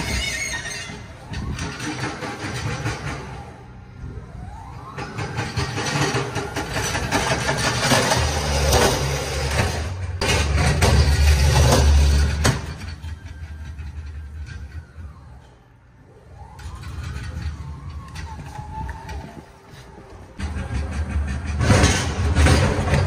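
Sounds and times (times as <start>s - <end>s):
rattling clatter: 4.8s - 15.5s, 20.4s - 23.0s.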